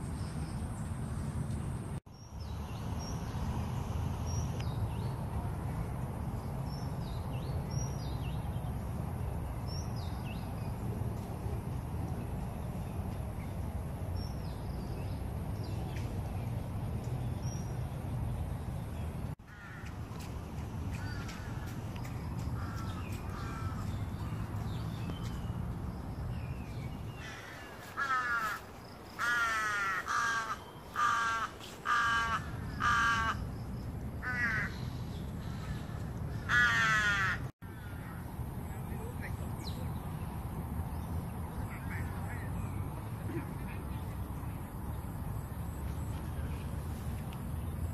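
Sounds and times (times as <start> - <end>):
crow cawing: 19.5 - 19.9, 27.2 - 28.6, 29.2 - 33.4, 34.2 - 34.8, 35.5 - 38.2.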